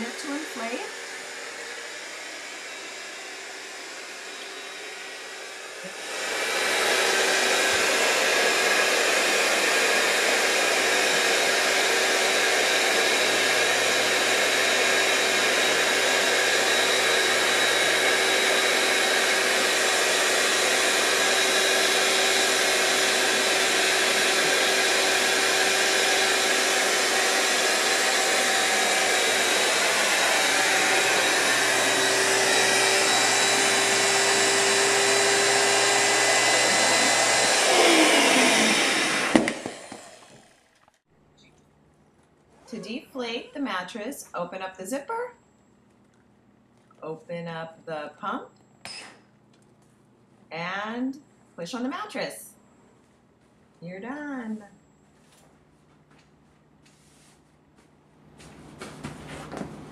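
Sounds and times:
electric air pump whirring: 0.0s - 40.8s.

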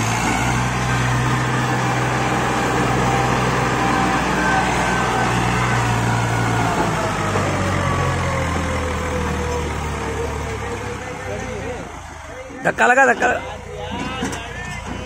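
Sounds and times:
tractor engine labouring: 0.0s - 15.0s.

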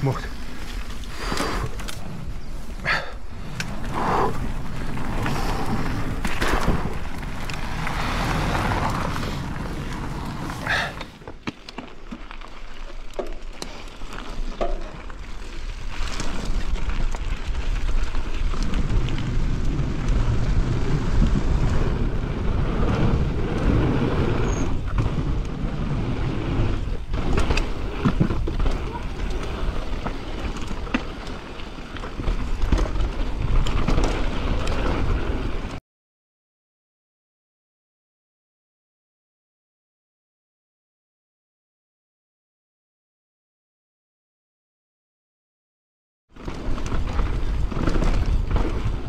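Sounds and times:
bike rattling over bumps: 0.0s - 35.8s, 46.3s - 49.0s
bike tyres rolling over dirt: 0.0s - 35.8s, 46.3s - 49.0s.

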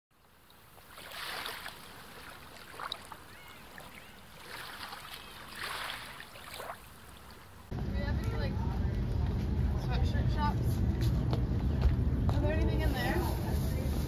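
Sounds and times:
water lapping and sloshing: 0.2s - 7.7s.

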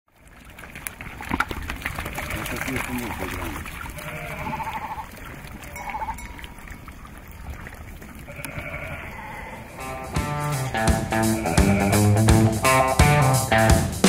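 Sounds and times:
sheep bleating: 3.9s - 6.2s, 8.3s - 12.5s.

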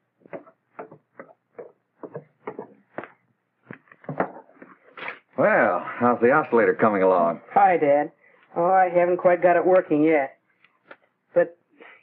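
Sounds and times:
soft irregular knocks and clicks: 0.2s - 4.8s.

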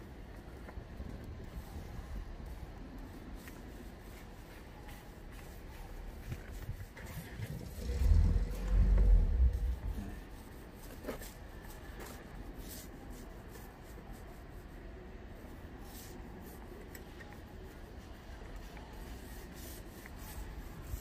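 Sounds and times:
low rumble: 7.0s - 10.2s.

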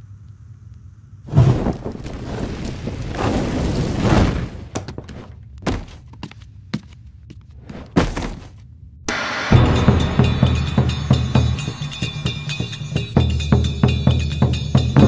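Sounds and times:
thud: 1.3s - 6.0s, 7.8s - 8.5s
heavy barefoot footsteps: 4.2s - 8.7s
rushing noise: 9.1s - 13.4s.

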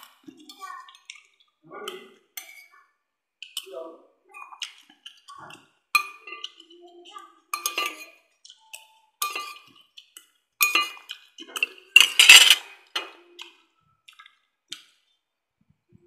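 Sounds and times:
cutlery clinking on ceramic plate: 12.0s - 12.6s.

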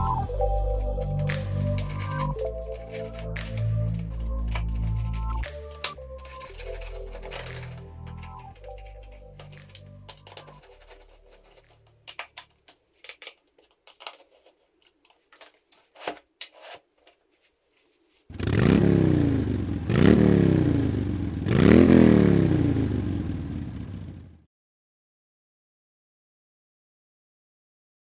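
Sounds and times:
motorcycle engine revving: 18.3s - 24.4s.

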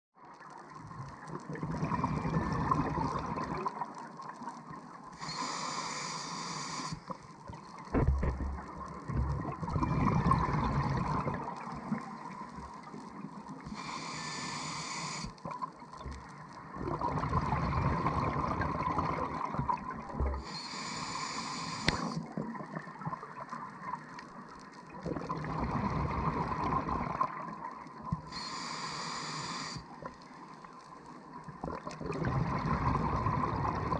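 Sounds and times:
exhaled air bubbling underwater: 0.3s - 33.9s
regulator inhalation hiss: 5.2s - 7.1s, 13.7s - 15.4s, 20.4s - 22.2s, 28.3s - 30.4s.

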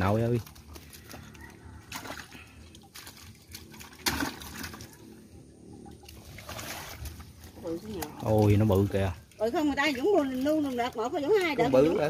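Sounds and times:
water trickling and sloshing: 0.0s - 12.0s.

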